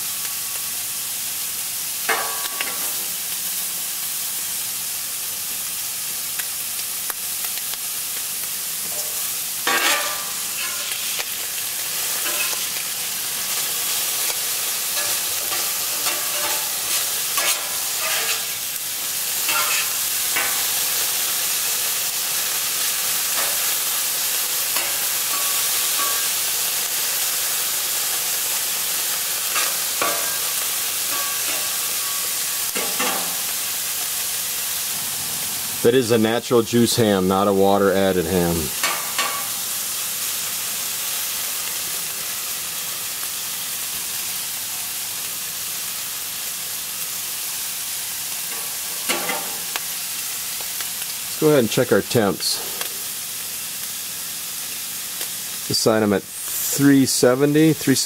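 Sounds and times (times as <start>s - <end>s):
ham sizzling on griddle: 0.0s - 58.0s
metal spatula scraping griddle: 8.9s - 11.3s, 12.0s - 12.8s, 13.5s - 18.7s, 19.3s - 21.0s, 24.7s - 26.4s, 29.5s - 33.5s, 48.5s - 49.7s.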